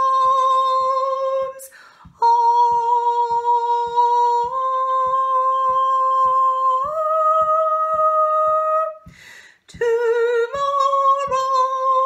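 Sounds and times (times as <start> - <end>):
woman singing: 0.0 - 12.0.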